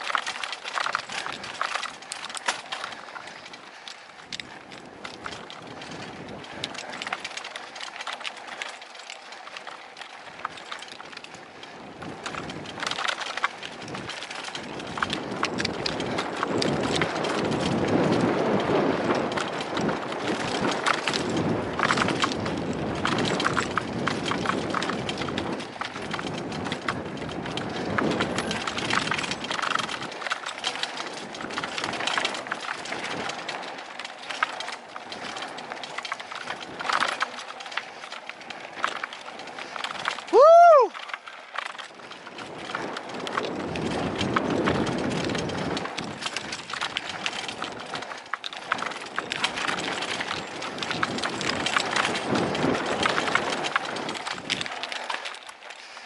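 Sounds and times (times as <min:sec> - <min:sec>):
bike rattling and knocking: 0:00.0 - 0:56.0
tyres crunching over dirt and rock: 0:12.0 - 0:40.3, 0:40.9 - 0:56.0.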